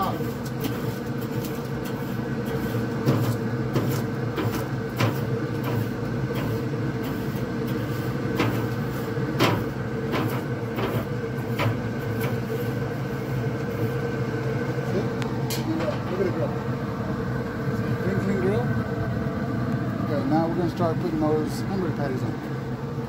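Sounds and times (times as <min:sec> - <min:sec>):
grill brush scraping grates: 0:00.0 - 0:14.1
grill humming: 0:00.0 - 0:23.0.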